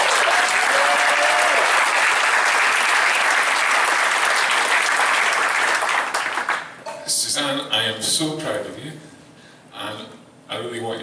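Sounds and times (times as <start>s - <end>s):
guests applauding: 0.0s - 6.8s.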